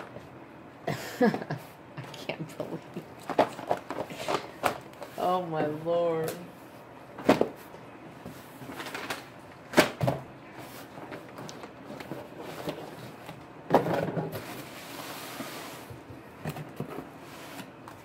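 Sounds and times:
cardboard and plastic rustling: 2.6s - 5.4s, 7.2s - 18.0s
boxes knocking and thudding: 11.3s - 14.7s.

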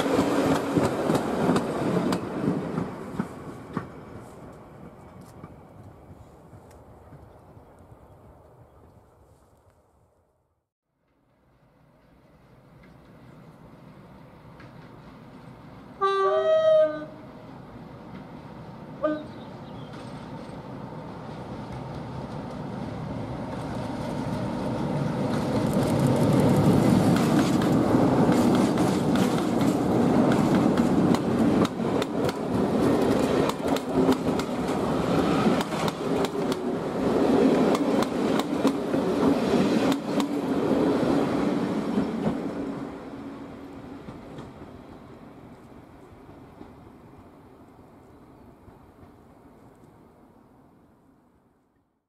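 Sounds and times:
train wheels clicking over rail joints: 0.0s - 4.2s, 25.2s - 40.6s
diesel locomotive engine: 11.2s - 50.4s.

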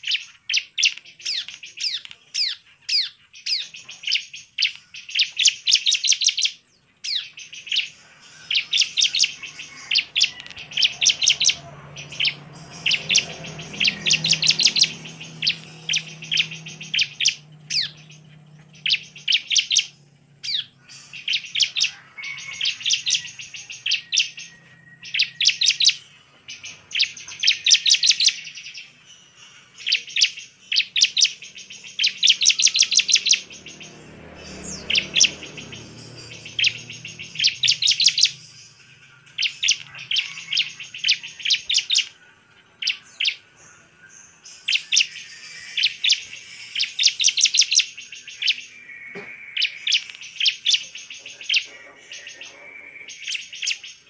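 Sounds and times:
bird chirping rapidly: 0.0s - 54.0s.

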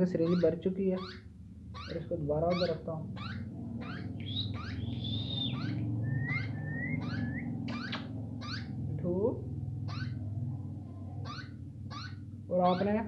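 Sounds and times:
parakeet chick chirping: 0.0s - 8.9s, 9.8s - 10.4s, 11.1s - 13.0s
steady low hum: 0.0s - 13.0s
whistle-like bird notes: 4.2s - 8.1s.

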